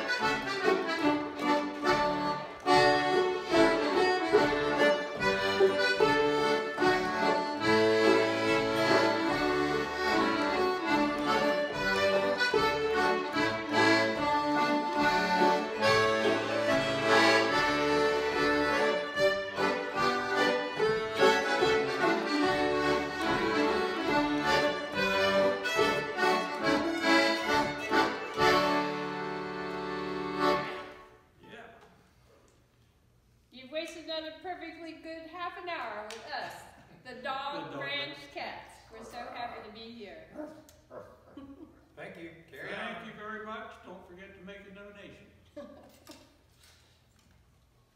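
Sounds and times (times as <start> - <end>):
old-time band playing: 0.0 - 31.1
accordion melody: 0.0 - 31.4.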